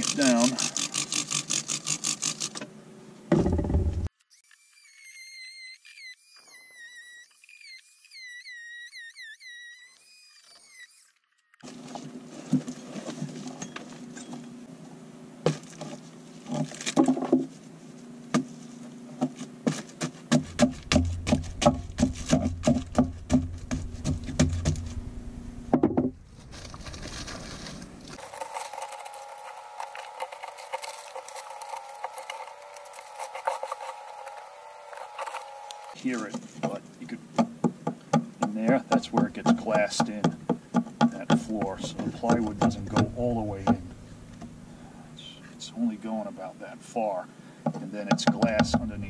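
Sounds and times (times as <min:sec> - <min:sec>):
steady hum: 0:20.3 - 0:36.1, 0:41.2 - 0:46.6
plywood cracking and breaking: 0:26.4 - 0:35.9.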